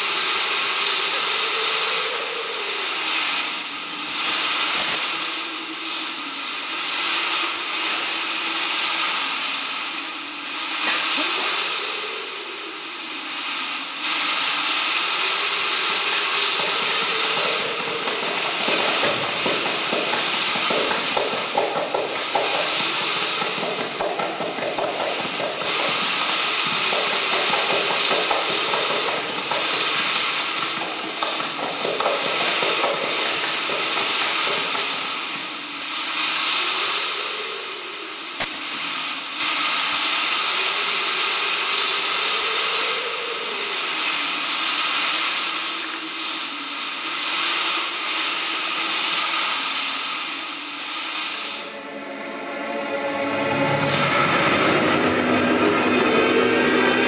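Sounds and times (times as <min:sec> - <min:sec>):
loud rushing hiss: 0:00.0 - 0:57.0
low wavering drone: 0:51.6 - 0:57.0.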